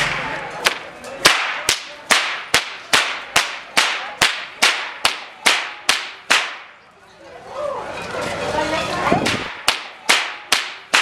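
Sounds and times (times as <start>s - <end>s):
whip cracking: 0.1s - 6.8s, 9.3s - 11.0s.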